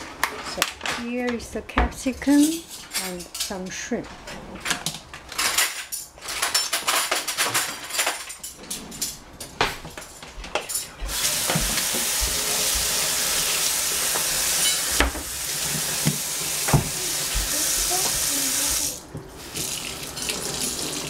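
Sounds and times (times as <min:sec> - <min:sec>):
peppers rolling on cutting board: 0:00.2 - 0:21.0
tap water running into sink: 0:11.1 - 0:21.0.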